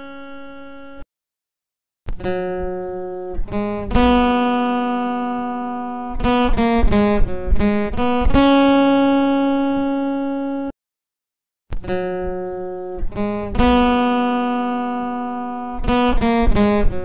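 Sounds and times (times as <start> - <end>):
acoustic guitar melody: 0.0 - 1.0, 2.1 - 10.7, 11.8 - 17.0.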